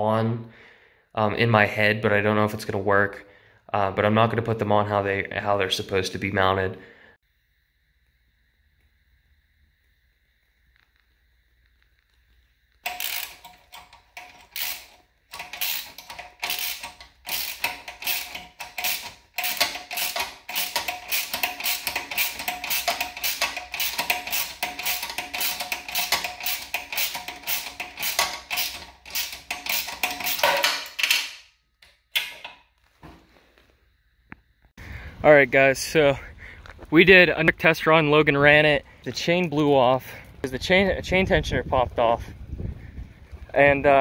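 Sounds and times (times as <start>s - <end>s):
socket ratchet clicking: 12.8s - 31.4s.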